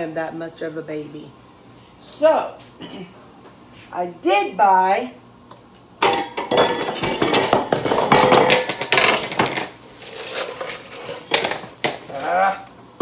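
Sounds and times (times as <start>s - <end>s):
kitchenware clattering: 6.0s - 12.2s.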